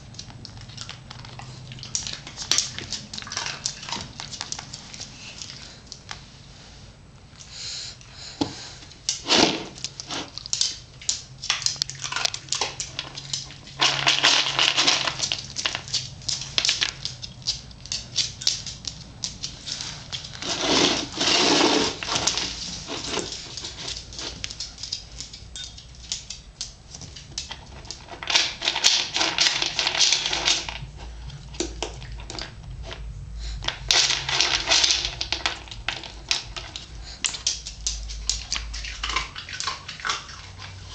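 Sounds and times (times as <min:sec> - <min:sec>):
kibble rattling in bowl: 0:10.3 - 0:26.0, 0:27.2 - 0:30.9, 0:33.7 - 0:40.9.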